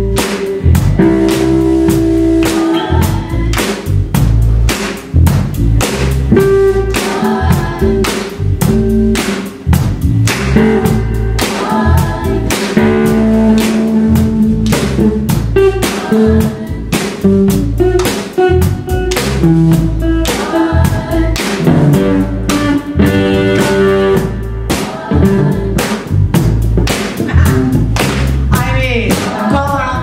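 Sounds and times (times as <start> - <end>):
lead guitar: 0.0 - 3.6, 6.3 - 26.4, 27.2 - 28.0
bass guitar: 0.0 - 30.0
drum kit beats: 0.0 - 30.0
backing singers: 2.4 - 3.8, 6.8 - 8.4, 10.4 - 15.0, 15.6 - 17.2, 20.0 - 26.2, 28.8 - 30.0.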